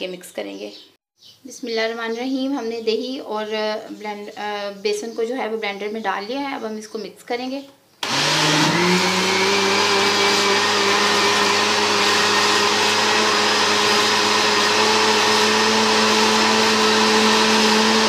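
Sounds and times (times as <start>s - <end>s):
blender motor whining: 8.0s - 18.0s.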